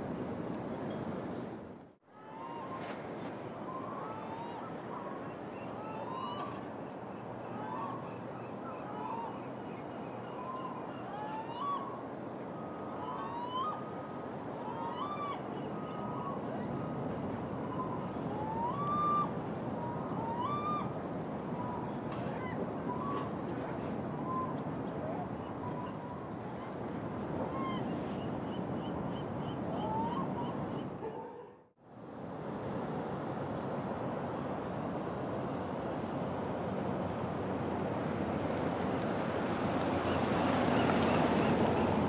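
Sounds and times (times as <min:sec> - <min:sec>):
gulls calling: 0:03.6 - 0:31.7, 0:39.7 - 0:42.0.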